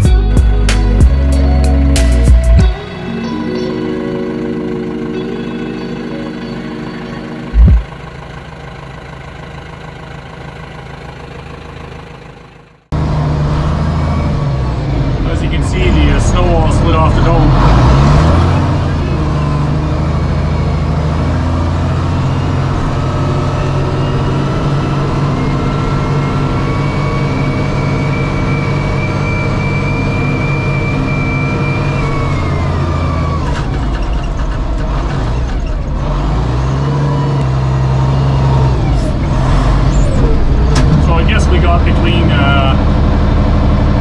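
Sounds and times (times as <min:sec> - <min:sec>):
diesel engine running under load: 0:00.0 - 0:44.0
steady high whine: 0:02.2 - 0:09.2.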